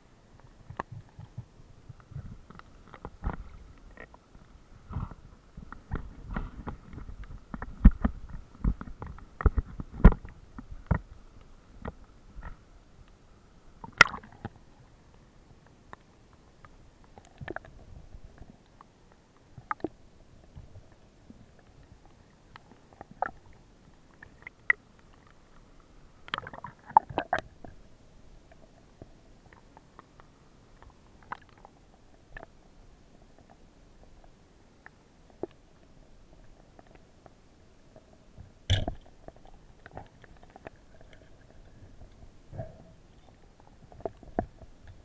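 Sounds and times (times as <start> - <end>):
muffled underwater sounds: 0.0 - 45.0
water splashing: 13.8 - 14.6.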